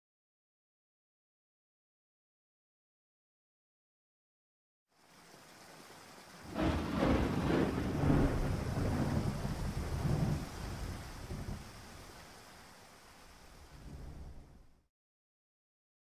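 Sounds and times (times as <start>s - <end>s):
rain hiss: 4.9s - 14.9s
rolling thunder: 6.4s - 12.1s, 13.8s - 14.8s.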